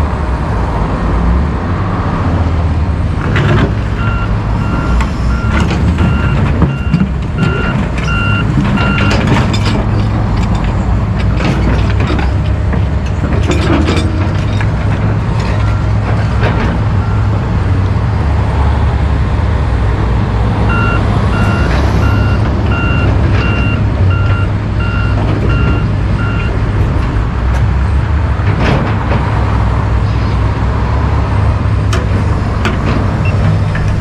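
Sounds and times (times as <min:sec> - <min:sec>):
diesel machinery rumbling: 0:00.0 - 0:34.0
backup alarm beeping: 0:04.0 - 0:09.2, 0:20.7 - 0:26.5.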